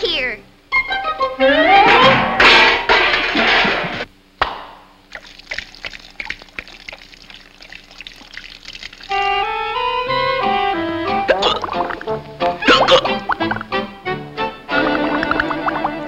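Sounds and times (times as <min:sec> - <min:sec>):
paint pouring rush: 0:05.1 - 0:09.2
paint trickling and dripping: 0:05.1 - 0:09.4
orchestral music: 0:09.2 - 0:16.0.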